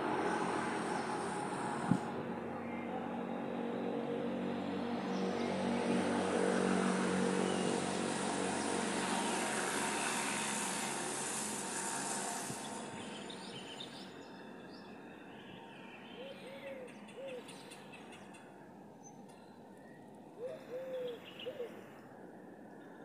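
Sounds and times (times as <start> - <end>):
vehicle passing by: 0.0 - 14.0.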